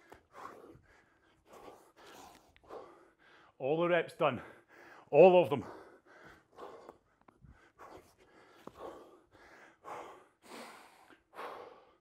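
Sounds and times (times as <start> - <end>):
person breathing hard: 0.0 - 3.6, 4.4 - 12.0.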